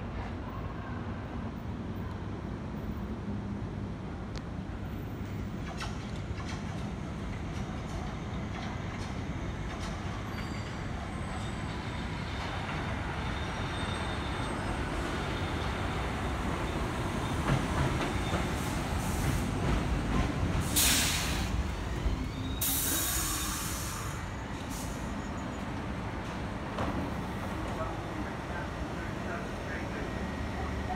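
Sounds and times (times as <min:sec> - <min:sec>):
faint wheel squeal: 0:10.2 - 0:12.6, 0:13.2 - 0:14.8, 0:20.8 - 0:25.8
train wheels rumbling on steel: 0:16.5 - 0:24.9
loud air hisses: 0:20.6 - 0:21.6, 0:22.6 - 0:25.0.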